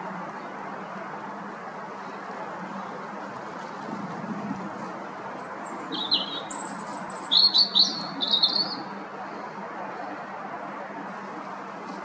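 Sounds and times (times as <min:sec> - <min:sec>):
robin singing: 0:05.4 - 0:08.9.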